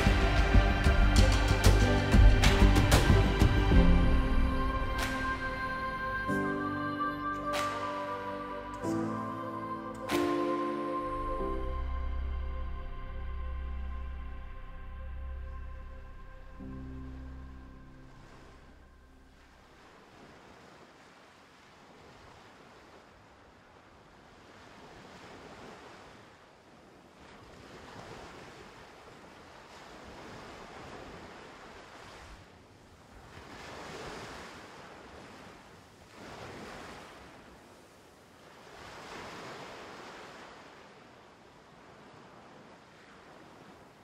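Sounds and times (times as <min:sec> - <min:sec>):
sea waves washing in: 0:00.0 - 0:44.0.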